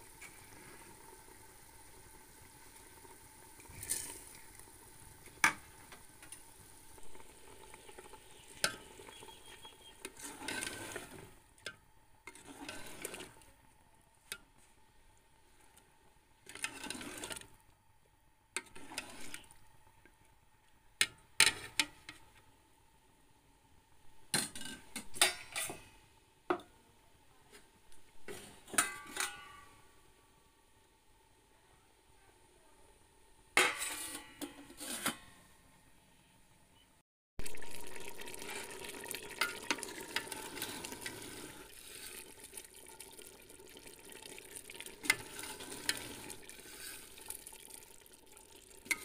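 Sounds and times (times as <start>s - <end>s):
ladle swishing through liquid: 9.5s - 11.3s, 12.3s - 13.5s, 37.4s - 49.0s
ladle clinking against metal pot: 28.7s - 29.7s.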